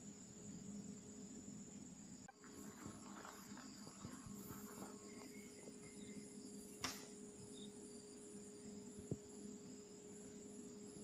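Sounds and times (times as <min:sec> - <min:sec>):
insects buzzing: 0:00.0 - 0:11.0
light chirps: 0:00.0 - 0:11.0
sharp click: 0:06.8 - 0:07.2.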